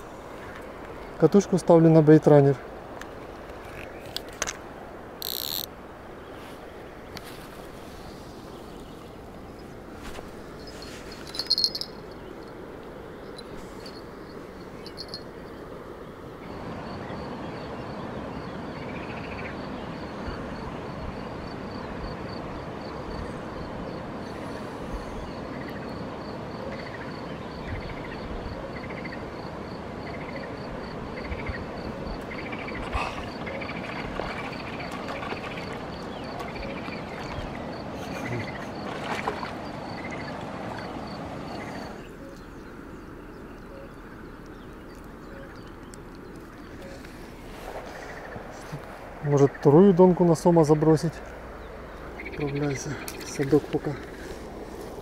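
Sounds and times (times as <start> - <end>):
steady hiss-like noise: 0.0 - 33.9, 39.7 - 55.0
short chirping calls: 5.2 - 5.7, 10.5 - 12.6, 13.2 - 15.6.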